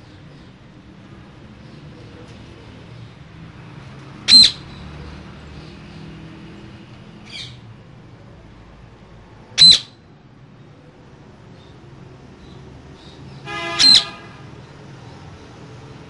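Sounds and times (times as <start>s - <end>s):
parakeet squawks: 4.2s - 4.8s, 7.3s - 7.6s, 9.6s - 10.0s, 13.5s - 14.3s
faint parakeet call: 4.3s - 4.8s, 9.6s - 10.0s, 12.4s - 14.4s.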